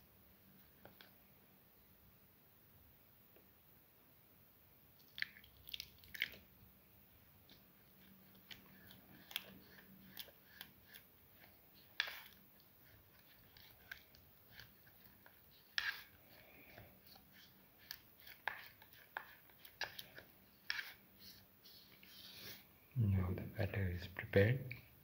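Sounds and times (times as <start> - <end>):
spatula stirring thick batter: 5.1 - 22.7.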